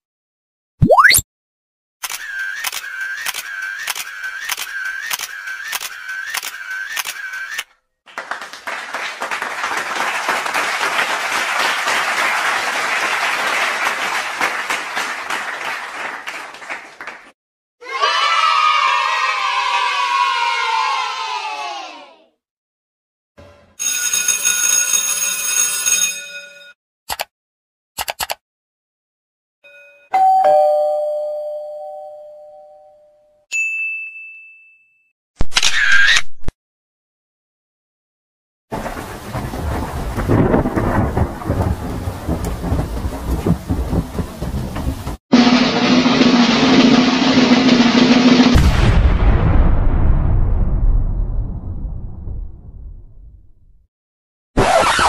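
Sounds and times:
crowd clapping: 8.0s - 17.4s
computer mouse clicking: 28.0s - 28.4s
two-note ding-dong chime: 29.7s - 35.0s.

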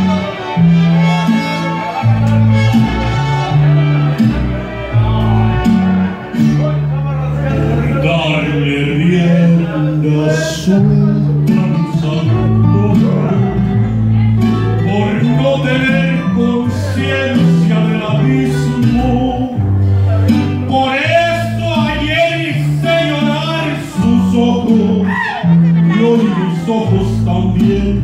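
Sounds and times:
backing music with bass line: 0.0s - 28.0s
man singing into microphone: 7.5s - 19.6s, 20.6s - 28.0s.

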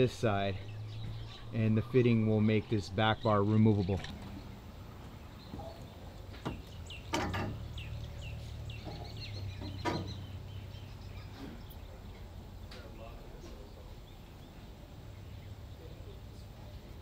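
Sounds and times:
bird chirps: 0.0s - 12.2s.

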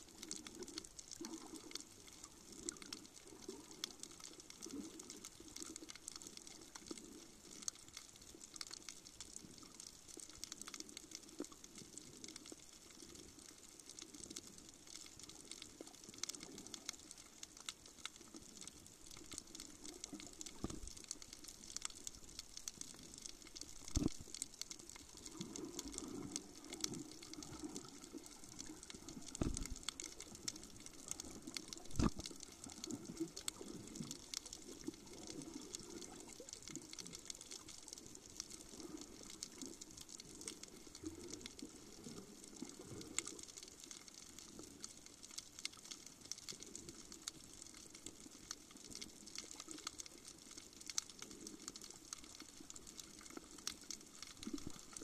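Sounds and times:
underwater fine crackling: 0.0s - 55.0s
water burbling: 19.0s - 43.7s, 52.7s - 55.0s.

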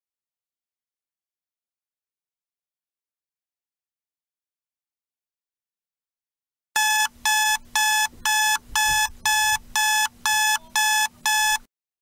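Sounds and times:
alarm clock beeping: 6.8s - 11.7s.

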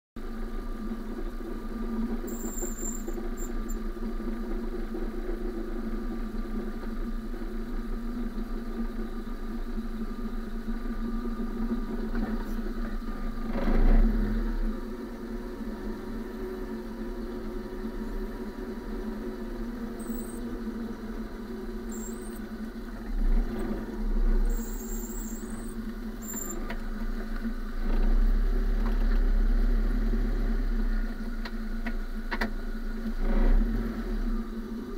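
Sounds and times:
tyre noise hum and rumble: 0.2s - 34.9s
high-pitched squeaks: 2.3s - 3.8s, 21.9s - 22.4s, 24.5s - 26.6s.

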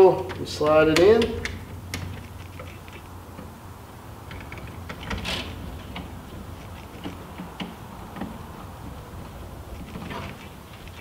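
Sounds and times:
screwdriver clicking and scraping: 0.3s - 3.1s.

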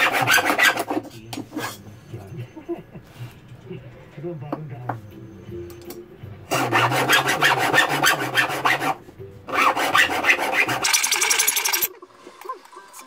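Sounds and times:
hand file rasping on sheet metal: 0.0s - 1.8s, 6.5s - 11.8s.

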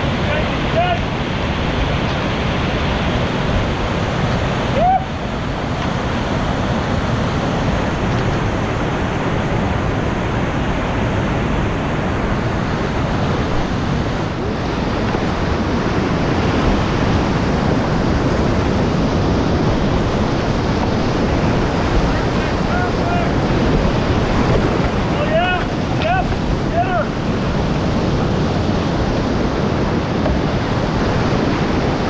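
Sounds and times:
whitewater rapids roaring: 0.0s - 32.0s.

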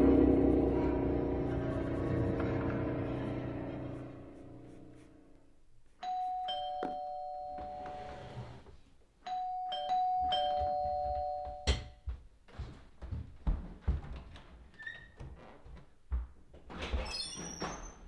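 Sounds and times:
two-tone doorbell chime: 6.0s - 8.1s, 9.2s - 12.0s.

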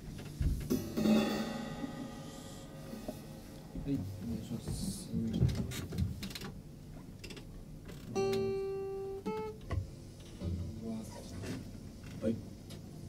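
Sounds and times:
guitars plucked and strummed: 0.6s - 4.2s, 8.1s - 10.8s.

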